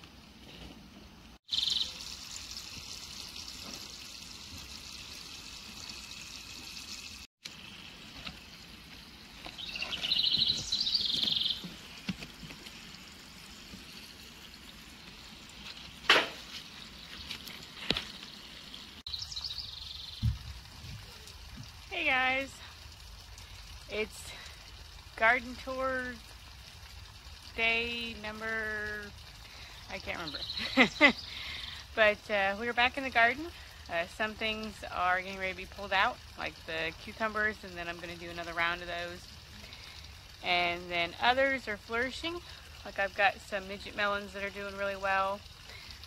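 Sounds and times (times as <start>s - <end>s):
small birds chirping: 1.5s - 2.2s, 8.4s - 11.8s, 16.5s - 21.4s, 29.5s - 31.9s.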